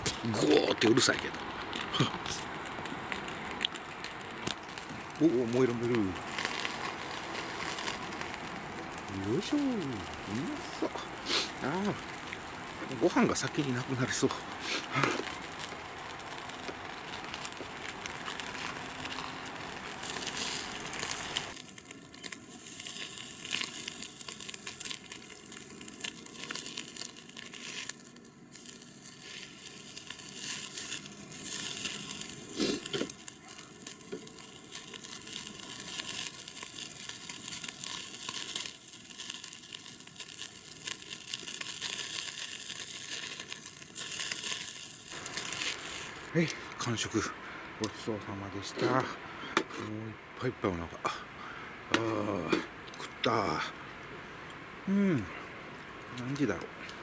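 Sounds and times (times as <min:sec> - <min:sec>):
fat crackling and popping: 0:00.0 - 0:57.0
meat sizzling on grill: 0:00.0 - 0:57.0.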